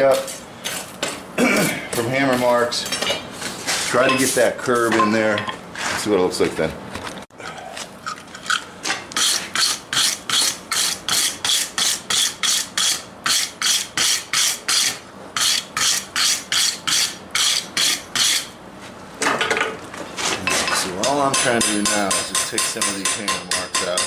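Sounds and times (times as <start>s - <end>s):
wire brush scraping hot steel: 9.1s - 18.6s.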